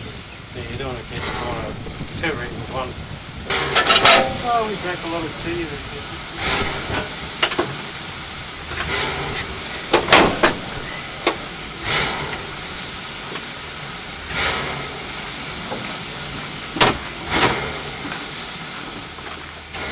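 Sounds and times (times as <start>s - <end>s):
steam locomotive hissing: 0.0s - 19.9s
sharp metallic knocks: 3.5s - 4.7s.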